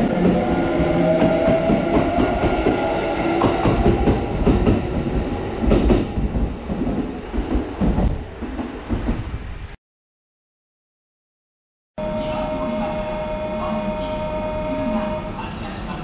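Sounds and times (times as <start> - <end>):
train motor whine: 12.0 - 15.5.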